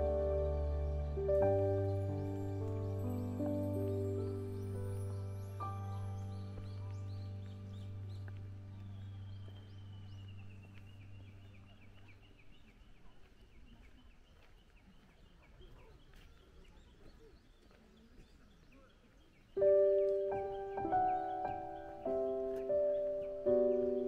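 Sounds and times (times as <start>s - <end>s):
background music: 0.0s - 12.1s, 19.6s - 24.0s.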